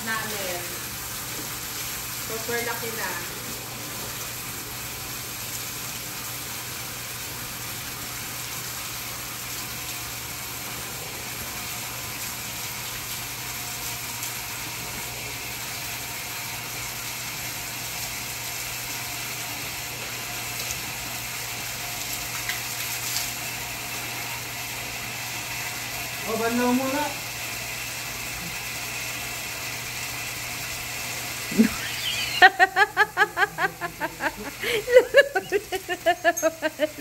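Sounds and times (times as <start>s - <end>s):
water from hose splashing: 0.0s - 37.0s
water splashing on concrete: 21.7s - 23.4s.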